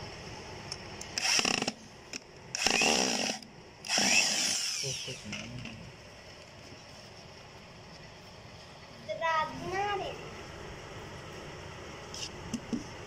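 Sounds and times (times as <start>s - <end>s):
electric drill driving a screw: 1.2s - 1.8s, 2.5s - 5.3s.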